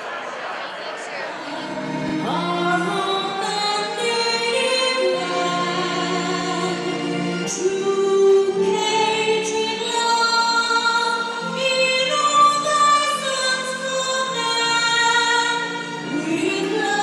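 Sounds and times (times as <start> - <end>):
choir singing anthem: 0.0 - 10.1.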